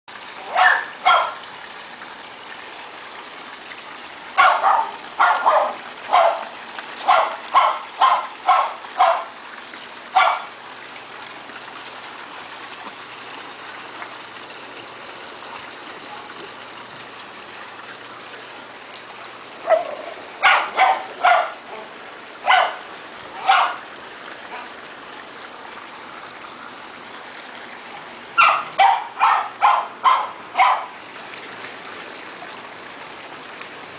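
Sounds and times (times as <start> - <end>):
dog barking: 0.4 - 1.4, 4.4 - 9.3, 10.2 - 10.5, 19.6 - 22.8, 23.4 - 23.8, 28.4 - 31.0.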